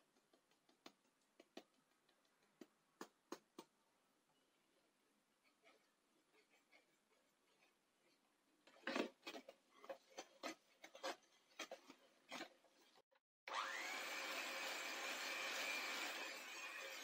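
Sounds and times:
electric hand mixer whine: 13.5 - 17.0.

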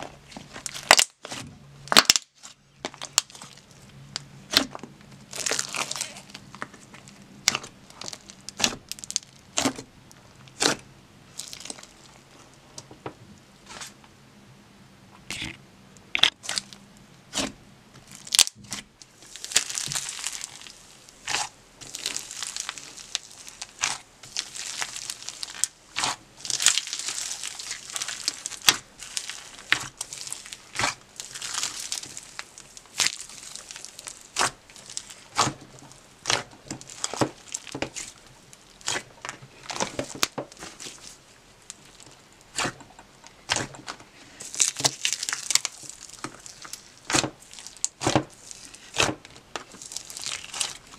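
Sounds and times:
slime crinkly crackling: 0.0 - 12.6, 16.1 - 50.9.

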